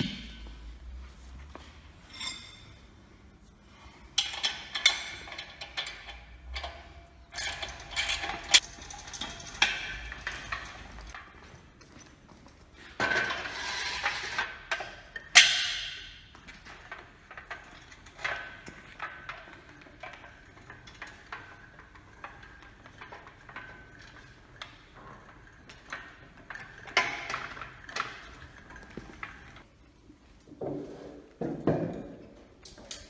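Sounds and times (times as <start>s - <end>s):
metal frame clanking and rattling: 4.1s - 29.7s.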